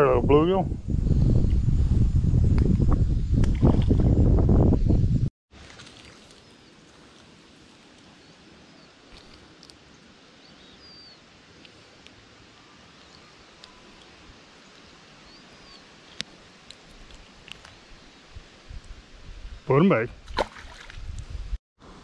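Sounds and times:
low steady hiss: 5.6s - 20.9s
faint high bird chirps: 10.4s - 11.2s.

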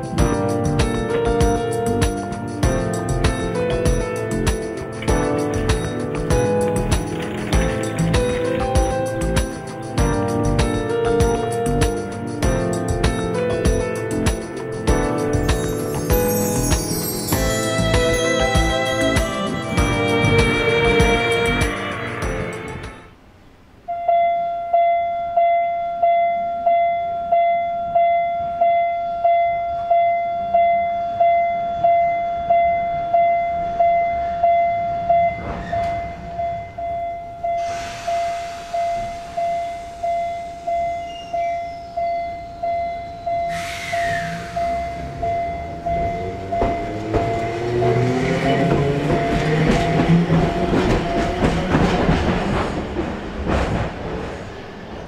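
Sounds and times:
electric train passing: 0.0s - 55.0s
level crossing bell ringing: 15.2s - 21.4s.

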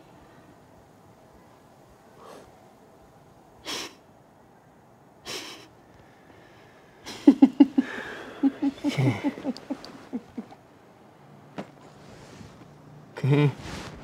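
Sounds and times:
woman giggling: 7.1s - 10.6s.

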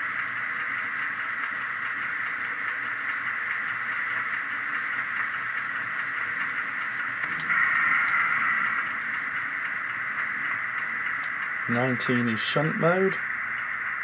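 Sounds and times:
steam locomotive hiss from speaker: 7.4s - 14.0s.

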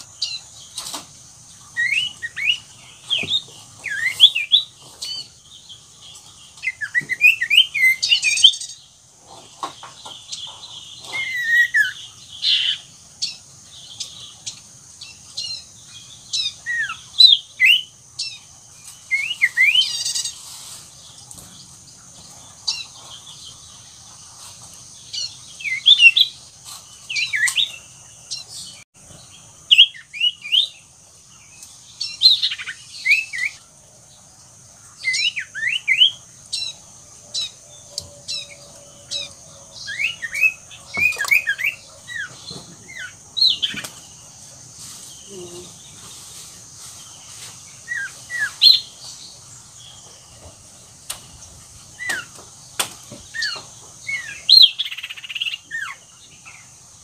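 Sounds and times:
high-pitched hiss: 0.0s - 57.0s
bird chirping and whistling: 1.8s - 4.7s.

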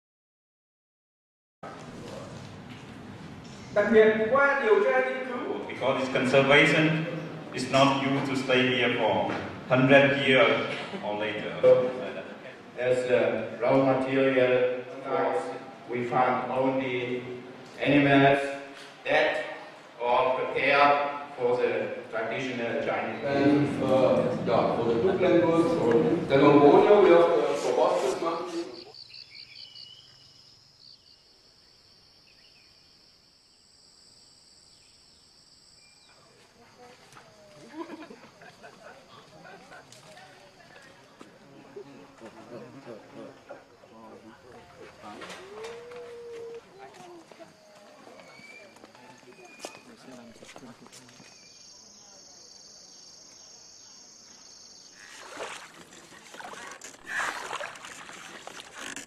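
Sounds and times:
insects droning: 3.4s - 59.0s
oars splashing in water: 54.9s - 59.0s.

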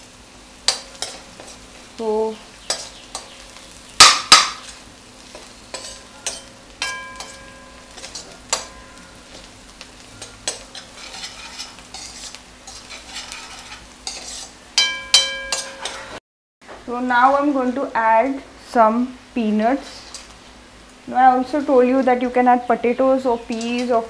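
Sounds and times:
onions sizzling in oil: 0.0s - 16.2s, 17.0s - 24.0s
spoon scraping a metal pan: 0.7s - 1.6s, 2.7s - 3.5s, 4.6s - 9.5s, 10.1s - 16.2s
spoon knocking on metal pan: 4.0s - 4.7s, 5.8s - 9.4s, 14.8s - 16.1s.

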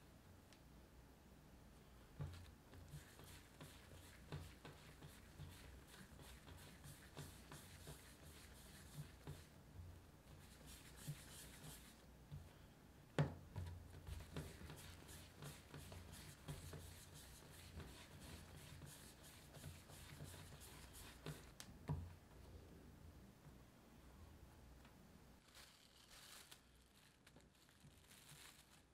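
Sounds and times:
dough rubbing and tapping on table: 2.2s - 9.5s, 10.3s - 12.5s, 13.2s - 22.1s.

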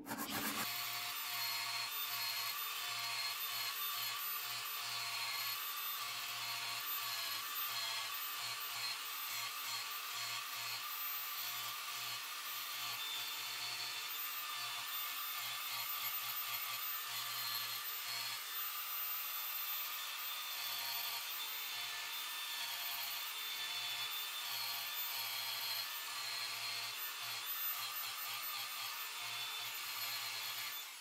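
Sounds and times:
angle grinder sanding steel: 0.0s - 1.4s.

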